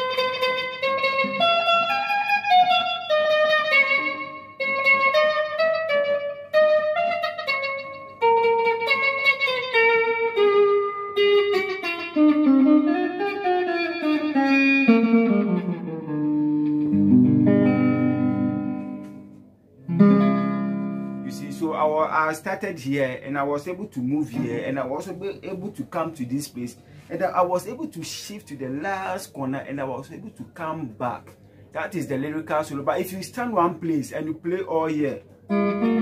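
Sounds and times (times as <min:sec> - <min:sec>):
electric guitar solo: 0:00.0 - 0:22.1, 0:24.3 - 0:25.2, 0:35.2 - 0:36.0.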